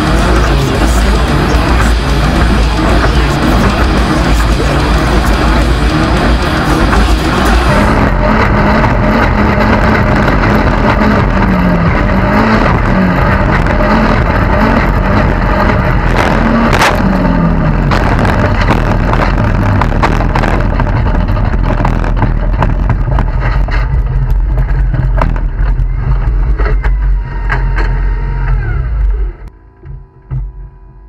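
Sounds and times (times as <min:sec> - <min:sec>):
race car engine drone: 0:00.0 - 0:31.0
rattling and knocks from rough ground: 0:17.9 - 0:29.2.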